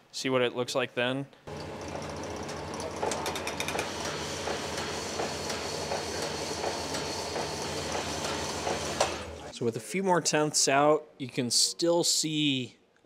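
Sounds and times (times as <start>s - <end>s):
honing machine humming: 1.5s - 9.5s.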